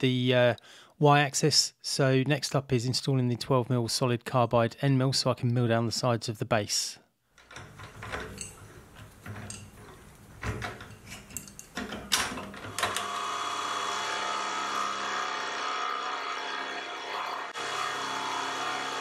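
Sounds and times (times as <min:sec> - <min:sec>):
metallic clicks and knocks: 0:07.4 - 0:13.0
milling machine cutting metal: 0:12.3 - 0:19.0.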